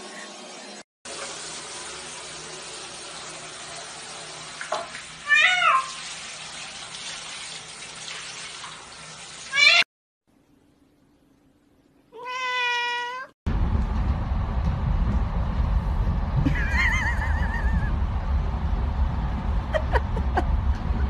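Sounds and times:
shower water running into tub: 0.0 - 9.9, 16.5 - 17.9
cat meowing: 12.2 - 13.3.

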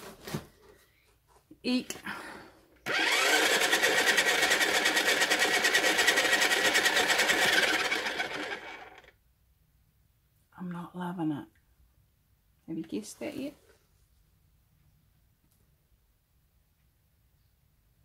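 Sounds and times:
pottery wheel motor whining: 2.8 - 9.1.

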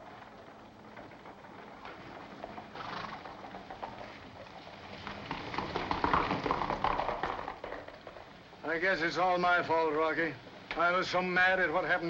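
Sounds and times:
horse hoofbeats: 0.0 - 9.4.

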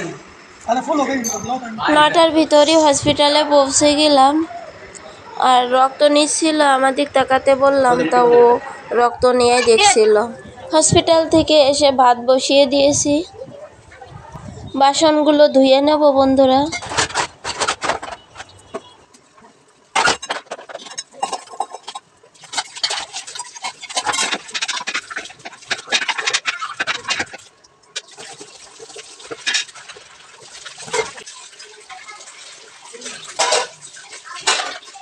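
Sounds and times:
metal dishes clattering: 16.6 - 19.0, 19.9 - 27.4, 33.0 - 35.0
running splashing water: 22.3 - 35.0.

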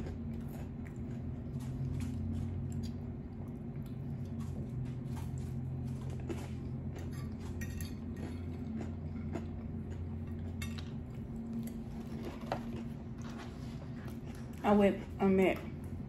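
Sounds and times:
chewing: 0.0 - 15.2
steady low hum: 0.0 - 16.0
cutlery clinking: 7.1 - 8.5.

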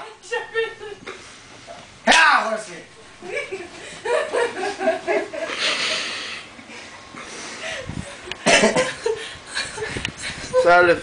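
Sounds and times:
people laughing breathlessly: 3.2 - 10.7
heavy breathing: 5.4 - 8.2.

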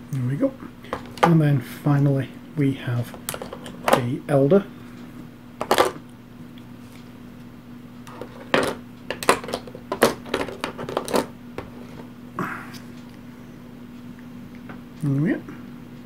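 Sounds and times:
steady low hum: 0.0 - 16.0
plastic pieces clicking: 8.1 - 11.3.

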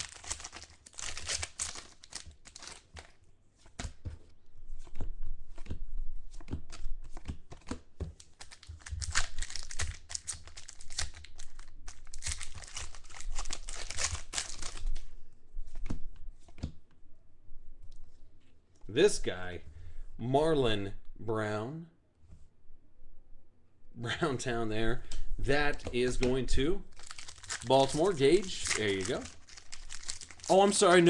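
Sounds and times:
foil wrapper tearing and crinkling: 0.0 - 3.2, 8.2 - 15.0, 26.9 - 31.0.

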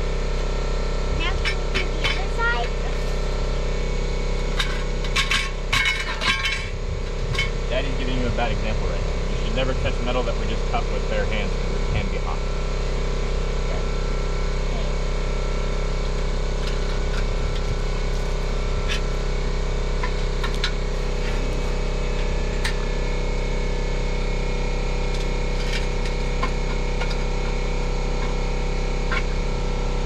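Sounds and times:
machine droning: 0.0 - 30.0.

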